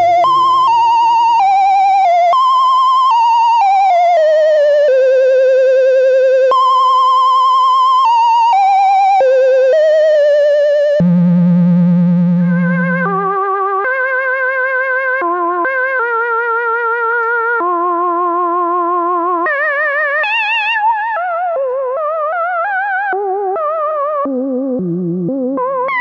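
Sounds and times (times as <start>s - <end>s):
synthesizer lead melody with vibrato: 0.0s - 4.8s, 11.0s - 14.7s.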